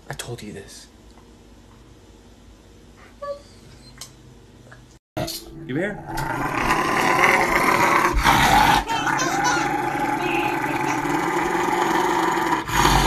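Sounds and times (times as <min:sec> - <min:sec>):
dog growling: 0:06.0 - 0:13.0.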